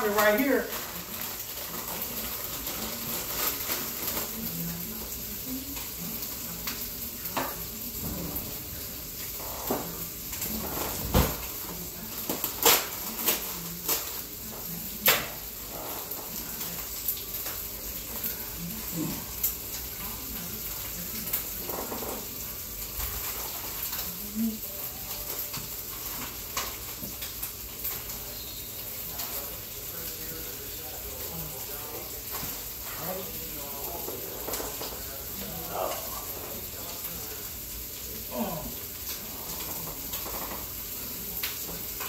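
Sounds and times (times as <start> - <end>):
plastic bag rustling and crinkling: 0.0 - 4.8.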